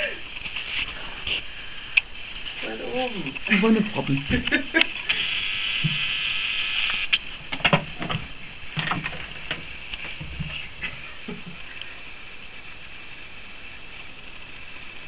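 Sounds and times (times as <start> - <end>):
soft knocks and scrapes: 8.9 - 10.7.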